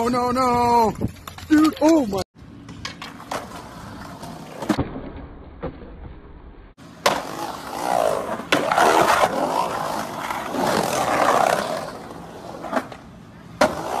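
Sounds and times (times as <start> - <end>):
skateboard wheels rolling on concrete: 0.0 - 14.0
skateboard clacks: 13.6 - 14.0.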